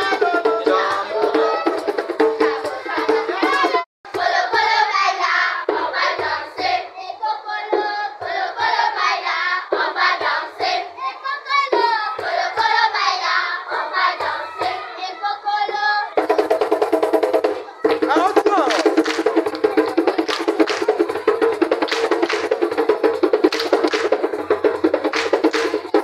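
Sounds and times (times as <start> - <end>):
children singing folk song: 0.0 - 26.0
hand claps: 17.9 - 21.1, 21.7 - 22.8, 23.4 - 24.2, 25.1 - 26.0.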